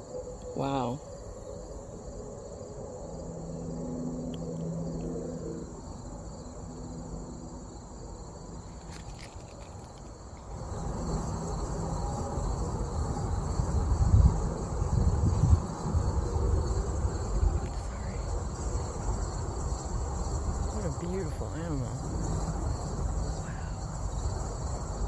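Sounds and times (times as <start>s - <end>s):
low hum: 0.0s - 9.9s
insect chorus drone: 0.0s - 25.0s.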